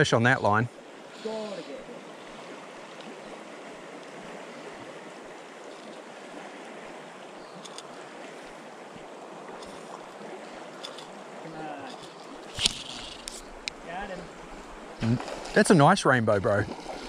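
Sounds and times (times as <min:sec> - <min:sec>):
creek water running: 0:00.0 - 0:17.0
faint ticks: 0:11.8 - 0:13.8.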